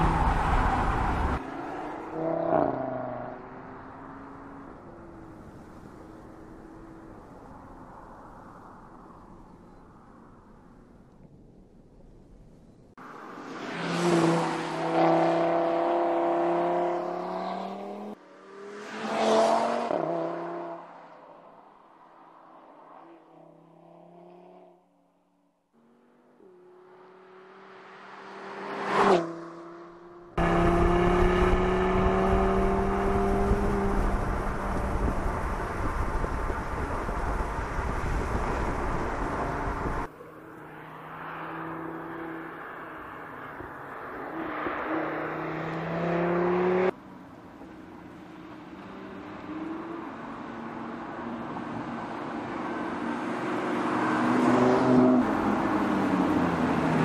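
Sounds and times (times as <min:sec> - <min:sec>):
wind and road noise: 0:00.0 - 0:57.0
car engine passing by: 0:13.1 - 0:21.0, 0:25.9 - 0:47.0
car engine cruising: 0:25.8 - 0:57.0.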